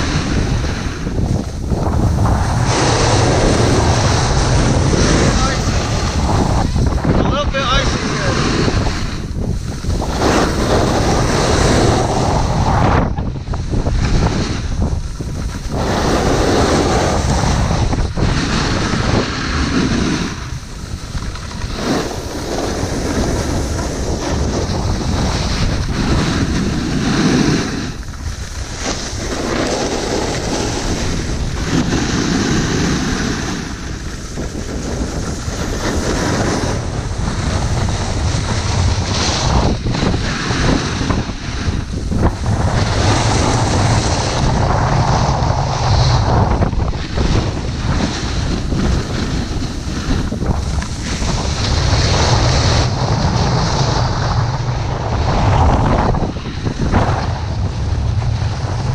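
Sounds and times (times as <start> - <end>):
snowboard edges scraping snow: 0.0 - 58.9
wind rushing over microphone: 0.0 - 58.9.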